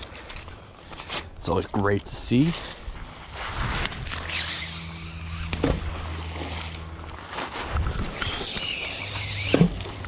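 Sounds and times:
low motor hum: 3.8s - 10.0s.

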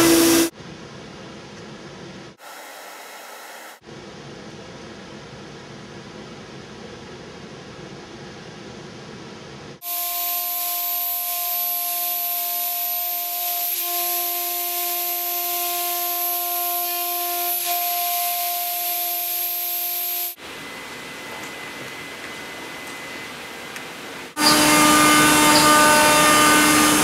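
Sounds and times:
router spindle whine: 0.0s - 0.5s, 9.8s - 23.7s, 24.3s - 27.0s
quiet machine hum: 20.4s - 24.4s.

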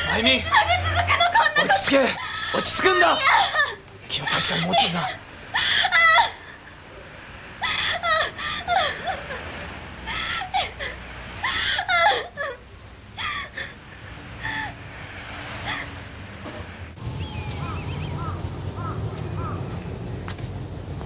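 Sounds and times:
woman sobbing: 0.3s - 6.9s, 7.6s - 9.5s, 10.1s - 14.7s.

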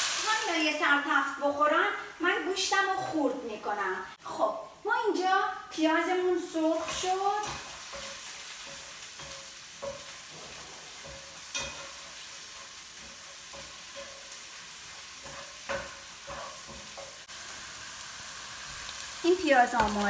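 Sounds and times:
onion and garlic sizzling in oil: 0.0s - 20.0s
spatula scraping a pan: 6.7s - 17.3s.

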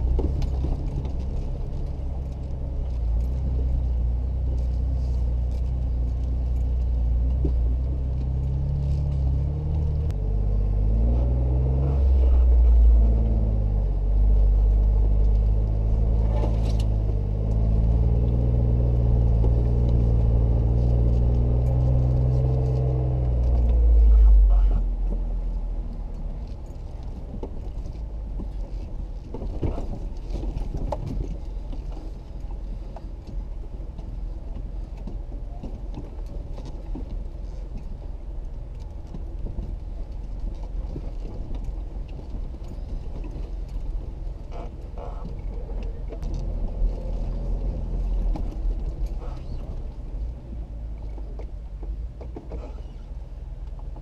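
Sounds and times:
car engine at low speed: 0.0s - 54.0s.

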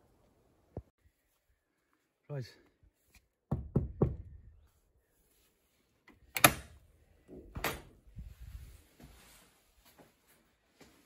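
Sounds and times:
knuckles knocking on wooden door: 3.5s - 4.3s
door latch clanking and rattling: 6.4s - 6.8s.

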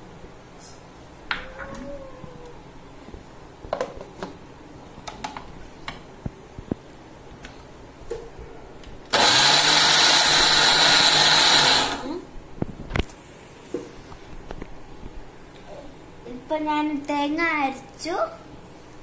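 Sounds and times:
mixer grinder motor running: 9.1s - 12.2s.

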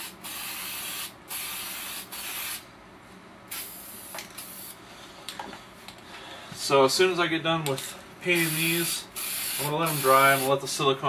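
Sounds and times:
spray paint can hissing: 0.0s - 2.6s, 3.5s - 4.8s, 8.4s - 10.5s.

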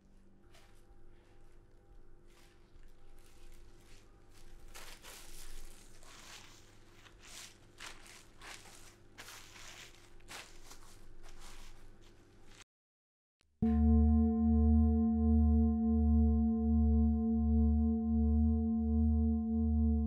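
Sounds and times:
plastic bag crinkling: 2.3s - 12.6s.

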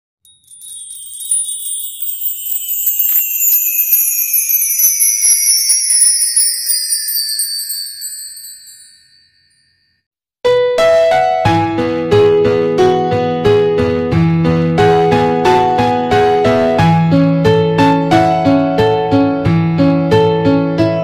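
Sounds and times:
shimmering chime tones gliding down: 0.3s - 9.7s.

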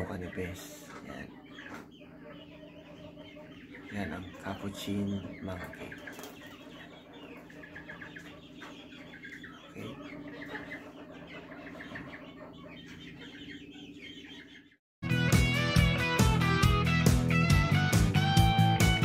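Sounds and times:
chickens clucking: 0.0s - 14.8s.

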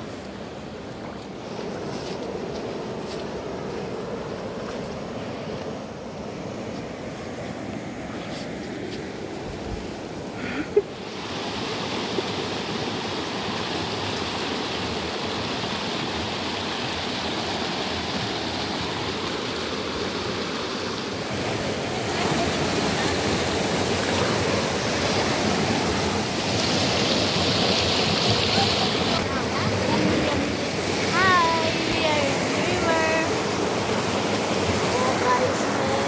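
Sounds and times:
river water rushing over rocks: 10.9s - 36.0s.

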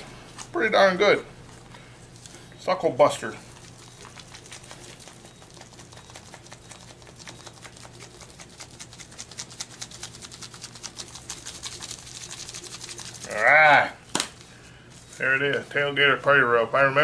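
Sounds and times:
shaker bottle rattling: 7.4s - 13.4s.

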